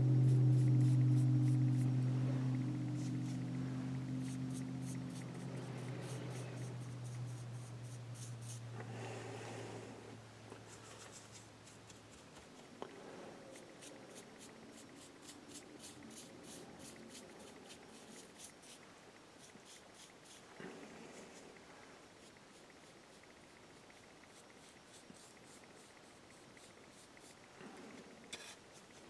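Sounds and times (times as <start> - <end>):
paintbrush strokes on wood: 0.0 - 9.9, 10.6 - 18.8
low steady hum: 0.0 - 29.0.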